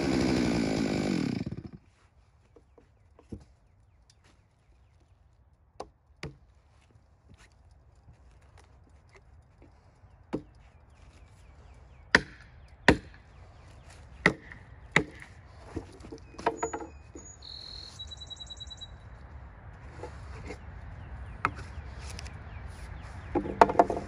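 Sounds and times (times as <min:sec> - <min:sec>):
axe chopping wood: 0:12.1 - 0:13.2, 0:14.2 - 0:15.3
high pulsing chirp: 0:16.3 - 0:19.2.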